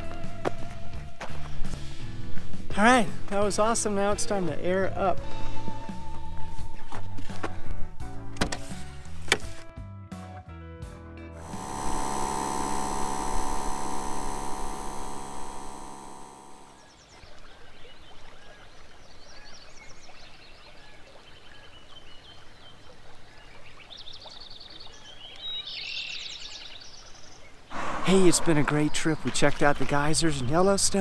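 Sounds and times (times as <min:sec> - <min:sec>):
air compressor motor whine: 0:11.4 - 0:16.8.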